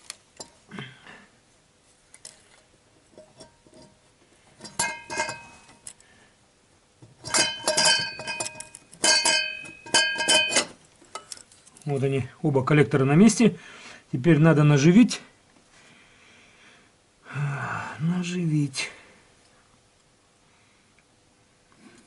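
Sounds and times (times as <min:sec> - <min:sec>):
metal clinks and scrapes: 0:03.1 - 0:04.0, 0:04.6 - 0:06.0, 0:07.2 - 0:12.1.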